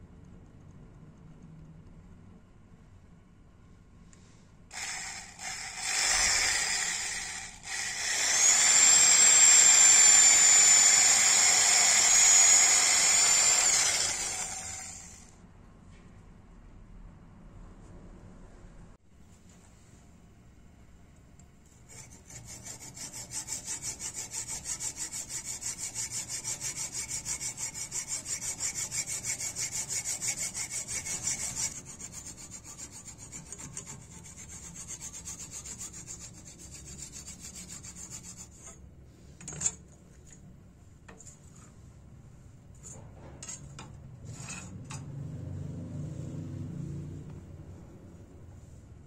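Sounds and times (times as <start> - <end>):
hacksaw cutting horn: 4.7 - 15.3, 21.9 - 38.8.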